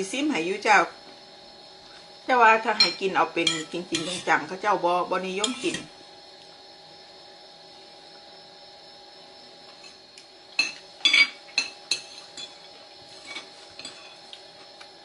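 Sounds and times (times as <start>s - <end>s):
cutlery clinking against bowl: 2.8s - 4.3s, 10.6s - 14.4s.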